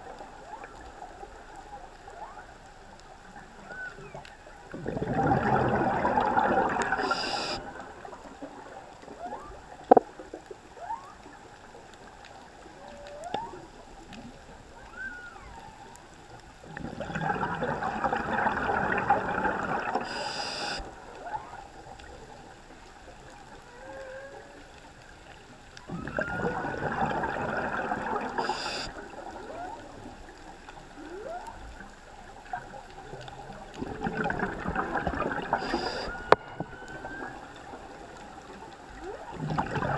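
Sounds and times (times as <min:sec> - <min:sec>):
whale song underwater: 0:00.0 - 0:39.9
diver's exhaled bubbles rushing: 0:04.7 - 0:08.2, 0:16.7 - 0:20.2, 0:25.9 - 0:30.1, 0:33.4 - 0:39.9.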